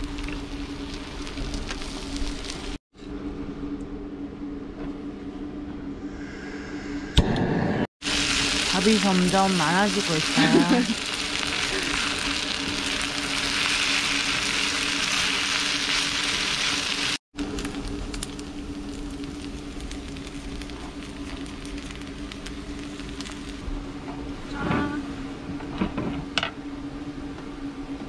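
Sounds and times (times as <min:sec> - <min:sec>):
rice sizzling on griddle: 0:00.0 - 0:02.8, 0:08.0 - 0:23.7
low hum: 0:00.0 - 0:28.0
light crackles and ticks: 0:17.6 - 0:23.6.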